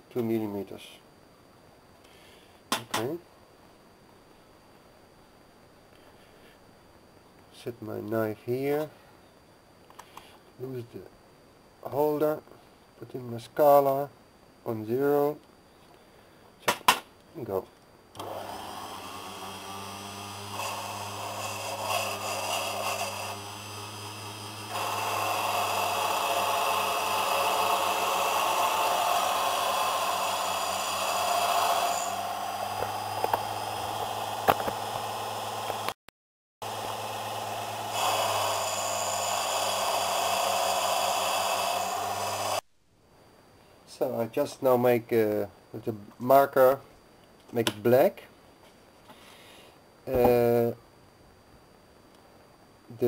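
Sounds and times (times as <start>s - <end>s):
lathe motor humming: 18.2s - 36.0s, 36.6s - 42.6s
lathe tool cutting metal: 36.6s - 42.6s.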